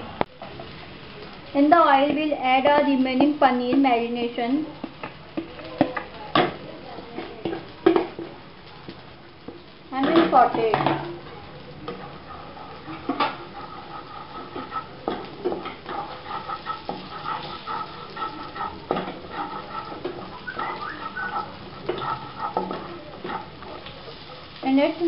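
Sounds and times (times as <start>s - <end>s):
oil sizzling: 0.0s - 25.0s
spatula scraping a wok: 10.0s - 25.0s.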